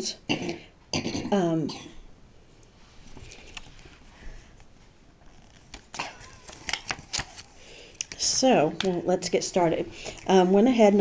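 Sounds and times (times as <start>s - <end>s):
paper rustling: 3.0s - 8.9s.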